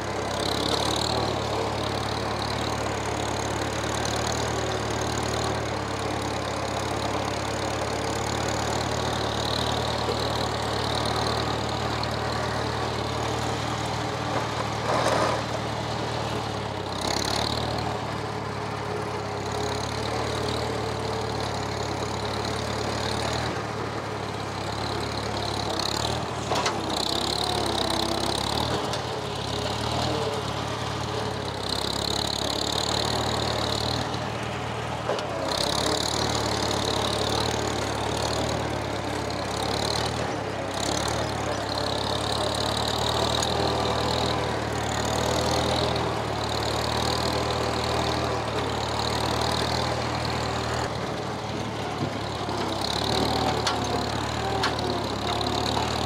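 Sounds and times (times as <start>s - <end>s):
tractor engine running: 0.0s - 56.0s
loader clunks: 9.9s - 17.5s, 24.8s - 31.6s, 50.4s - 56.0s.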